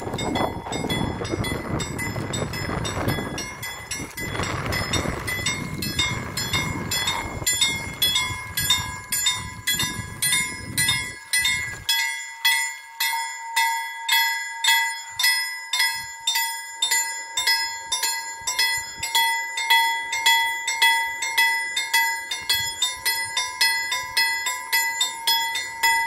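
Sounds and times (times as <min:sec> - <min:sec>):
low rumbling: 0:00.0 - 0:11.8
level crossing bell ringing: 0:00.0 - 0:26.0.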